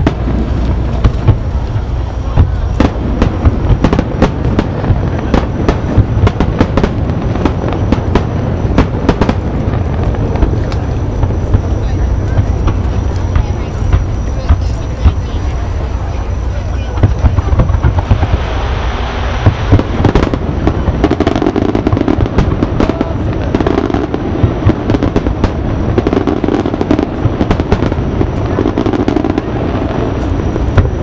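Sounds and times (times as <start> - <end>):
firework shells bursting: 0.0 - 31.0
low rumble: 0.0 - 31.0.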